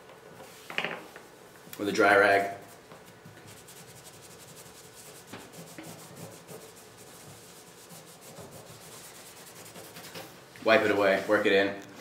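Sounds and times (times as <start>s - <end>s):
rag scrubbing wood: 3.5s - 10.3s.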